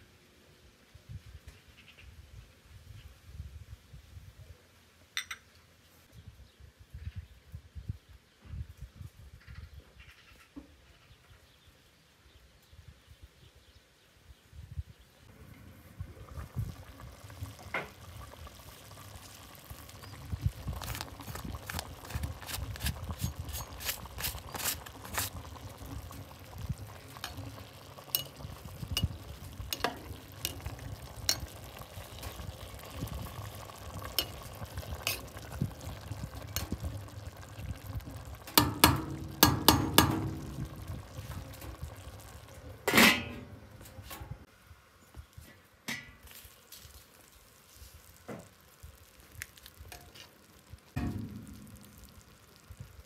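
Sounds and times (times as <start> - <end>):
low sizzle: 14.0 - 53.0
metal spoon scraping a pot: 20.8 - 25.4
pot lid clanging: 38.6 - 40.7, 42.9 - 43.6.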